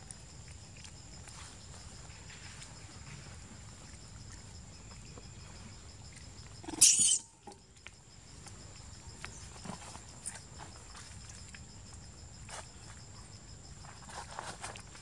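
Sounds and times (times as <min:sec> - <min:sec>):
monkey squealing: 0:06.7 - 0:07.3.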